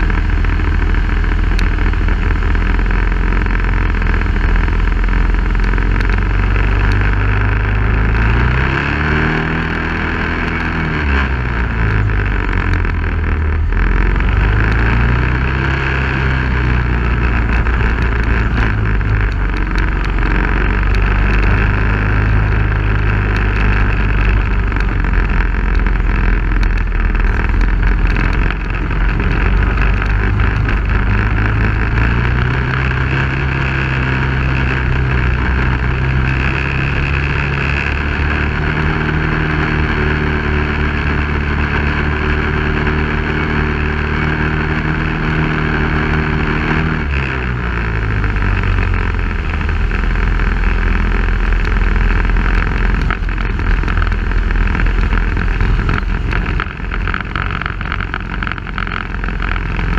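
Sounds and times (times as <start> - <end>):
off-road vehicle engine: 0.0 - 59.9
road and wind noise: 0.0 - 59.9.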